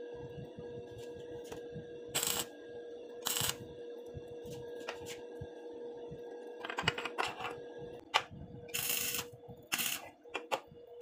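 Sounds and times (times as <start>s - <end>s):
welding arc crackle: 2.2s - 2.5s, 3.2s - 3.6s.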